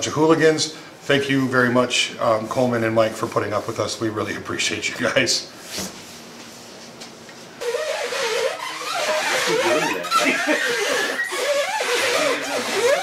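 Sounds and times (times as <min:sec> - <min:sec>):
people talking: 0:00.0 - 0:05.5, 0:09.2 - 0:10.7
people laughing: 0:09.5 - 0:11.2.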